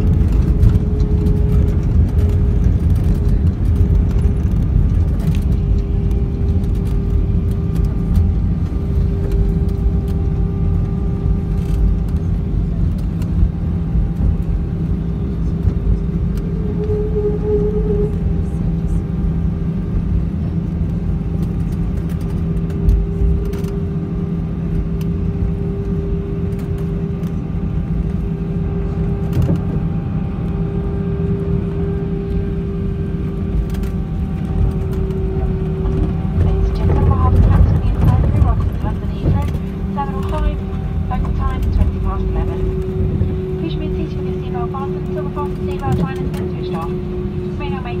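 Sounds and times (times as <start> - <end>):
aircraft cabin rumble: 0.0 - 48.0
constant hum: 0.0 - 48.0.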